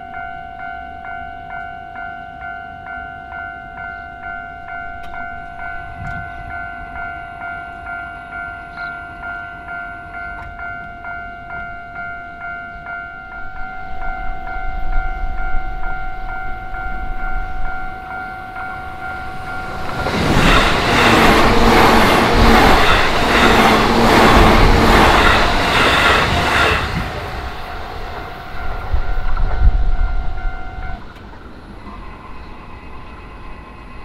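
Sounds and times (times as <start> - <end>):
level crossing warning bell ringing: 0.0 - 31.2
train wheels clattering over rail joints: 19.7 - 27.5.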